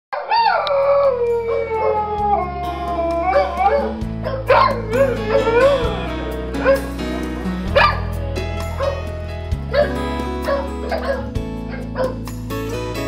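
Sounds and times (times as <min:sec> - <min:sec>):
dogs howling: 0:00.2 - 0:08.0
background music with held chords: 0:00.7 - 0:13.0.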